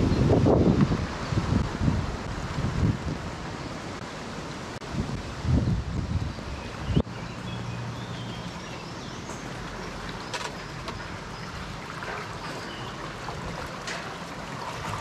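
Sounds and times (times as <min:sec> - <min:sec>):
wind: 0:00.0 - 0:15.0
river water rushing: 0:06.3 - 0:15.0.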